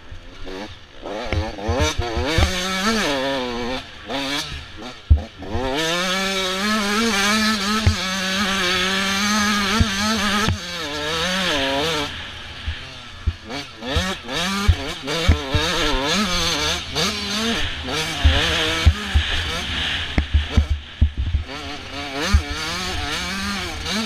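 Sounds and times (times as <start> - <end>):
motocross bike engine revving: 0.0 - 24.0
sharp knocks: 20.2 - 21.5.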